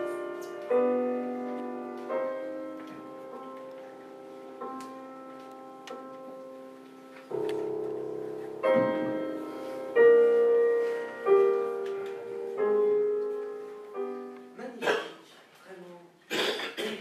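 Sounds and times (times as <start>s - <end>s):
slow held chords music: 0.0s - 14.6s.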